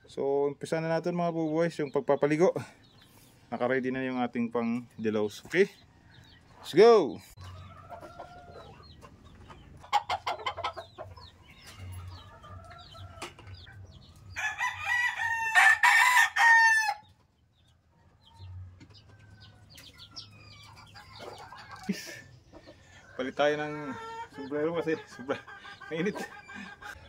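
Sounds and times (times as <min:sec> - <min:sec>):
birds clucking and calling: 0:00.0 - 0:27.0
rooster crowing: 0:14.3 - 0:17.1.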